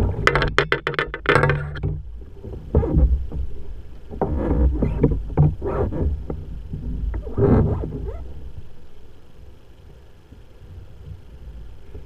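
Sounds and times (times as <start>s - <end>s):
waves slapping against hull: 0.0s - 8.9s
low rumble: 1.4s - 12.0s.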